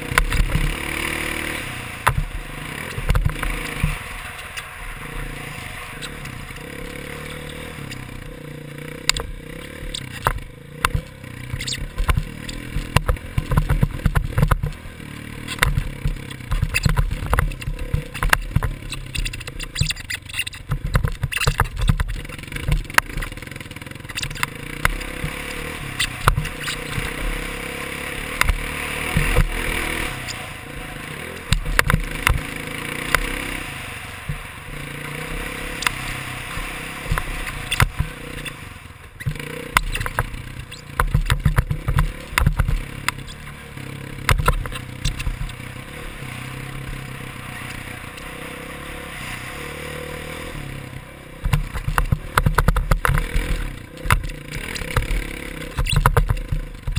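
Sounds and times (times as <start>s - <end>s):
dirt bike engine running: 0.0s - 56.9s
sharp knocks and clatters: 0.1s - 0.9s, 2.0s - 4.5s, 9.0s - 14.8s, 15.4s - 27.2s, 31.4s - 33.4s, 39.2s - 43.6s, 44.2s - 45.6s, 51.4s - 56.9s.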